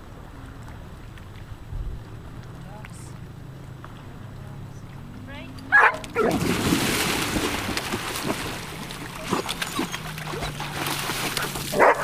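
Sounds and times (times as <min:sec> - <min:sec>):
dogs splashing in water: 0:05.1 - 0:12.0.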